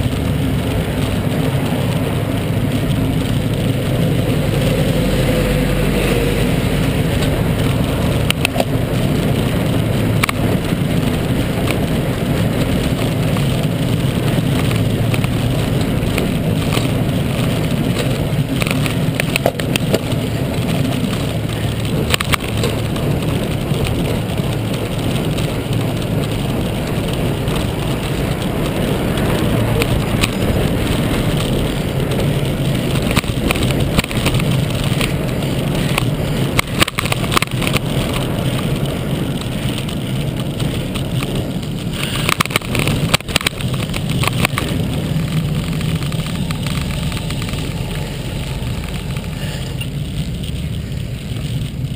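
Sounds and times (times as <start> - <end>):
road rumble: 0.0 - 51.9
bike clicks and knocks: 6.0 - 51.9.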